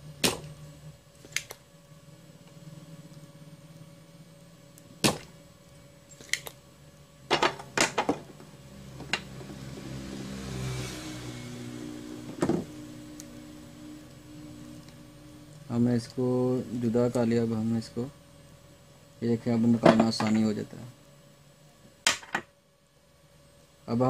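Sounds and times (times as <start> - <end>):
faint steady hum: 0.0 - 24.0
desoldering pump snapping: 0.2 - 1.6, 6.1 - 6.6.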